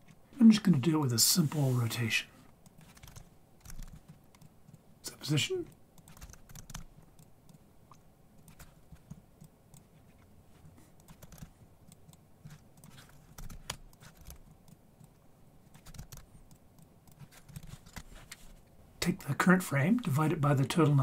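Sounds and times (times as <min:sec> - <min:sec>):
keyboard typing: 0:02.6 - 0:04.9, 0:05.5 - 0:10.3, 0:11.0 - 0:18.3.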